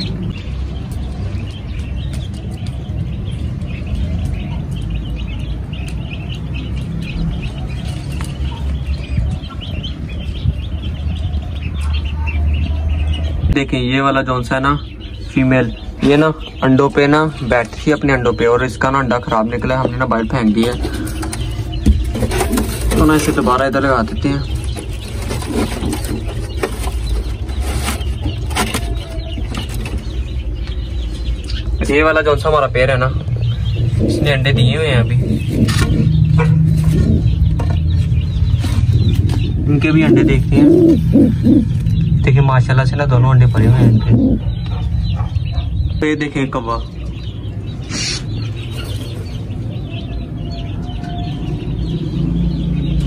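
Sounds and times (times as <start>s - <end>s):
small birds chirping: 0.0s - 53.0s
steady low rumble: 30.1s - 50.4s.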